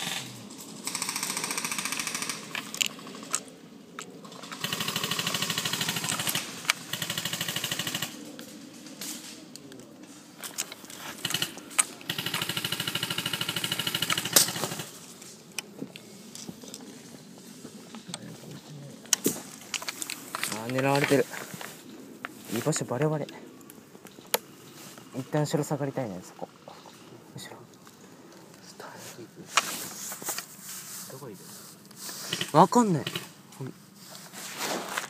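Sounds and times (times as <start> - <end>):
airsoft guns firing full-auto bursts: 0.0 - 3.2, 4.3 - 8.2, 11.1 - 15.0.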